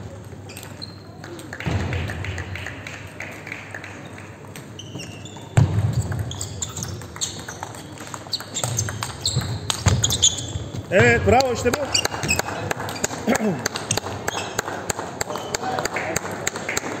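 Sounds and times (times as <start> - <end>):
shoes squeaking on sports floor: 0.1 - 1.3, 4.6 - 13.2, 13.9 - 14.6
table tennis ball clicking: 6.7 - 9.9.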